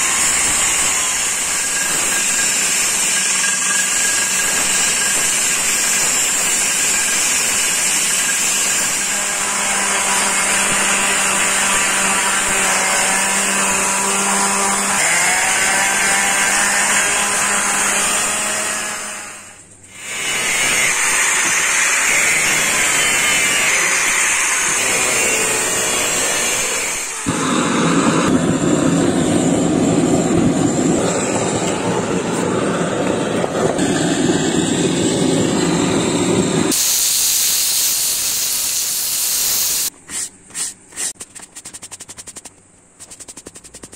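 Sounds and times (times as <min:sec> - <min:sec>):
belt grinder sanding wood: 0:00.0 - 0:19.1, 0:37.9 - 0:43.9
rough rushing noise: 0:27.2 - 0:36.9, 0:40.9 - 0:43.9.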